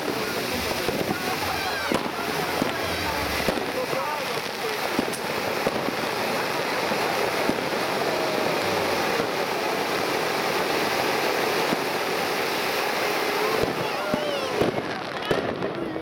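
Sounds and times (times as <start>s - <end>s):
firework fountain hissing: 0.0s - 16.0s
faint sharp pops: 5.0s - 5.8s.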